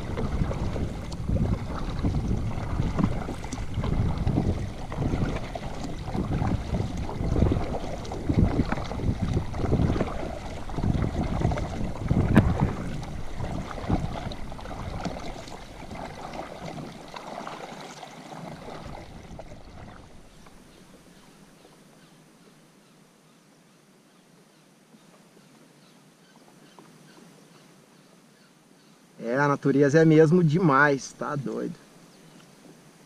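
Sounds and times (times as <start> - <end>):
wind buffeting microphone: 0.0 - 17.1, 18.5 - 20.4
kayak paddle splashing: 0.0 - 22.0.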